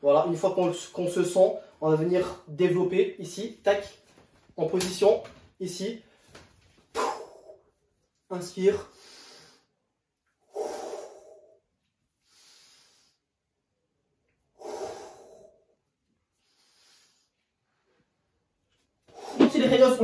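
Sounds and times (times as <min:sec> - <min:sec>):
man breathing out hard: 0:06.9 - 0:07.6, 0:10.5 - 0:11.6, 0:14.6 - 0:15.7
quiet breath in: 0:10.5 - 0:11.6, 0:12.2 - 0:13.3, 0:14.6 - 0:18.2.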